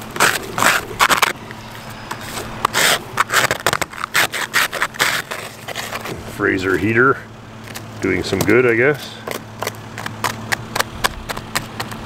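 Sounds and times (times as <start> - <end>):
ice scraper scraping window glass: 0.0 - 1.4, 2.1 - 6.2
car engine idling: 0.0 - 12.0.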